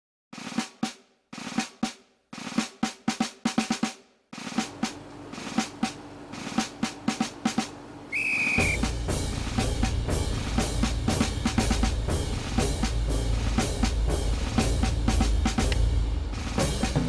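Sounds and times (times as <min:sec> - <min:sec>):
march music: 0:00.4 - 0:17.0
snare drum rolls: 0:00.4 - 0:17.0
short high steady tone: 0:08.1 - 0:08.8
bass drum strokes: 0:08.6 - 0:17.0.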